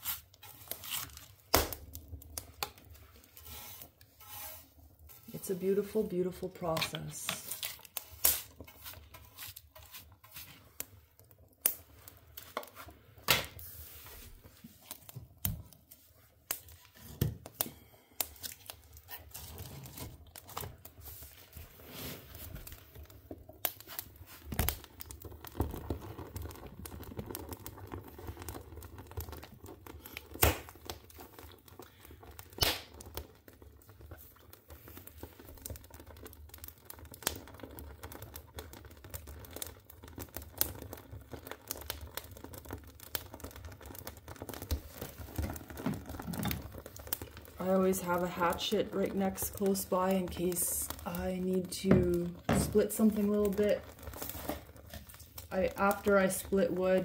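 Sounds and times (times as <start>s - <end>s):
wood fire crackling: 0.0s - 57.0s
loud pops of fire: 0.6s - 2.7s, 23.5s - 31.6s, 32.3s - 33.5s.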